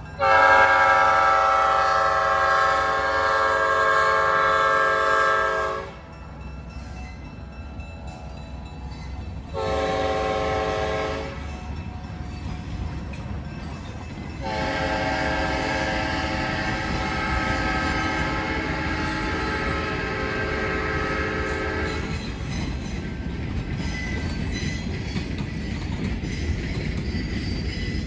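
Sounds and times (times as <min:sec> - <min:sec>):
freight cars rumbling on track: 0:00.0 - 0:28.0
locomotive air horn chord: 0:00.2 - 0:06.1, 0:09.5 - 0:11.5, 0:14.4 - 0:22.1.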